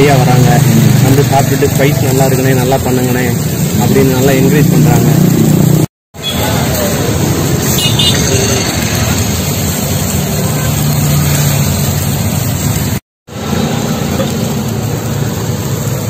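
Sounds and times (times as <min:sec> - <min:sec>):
loud low rumble with hiss: 0:00.0 - 0:07.7.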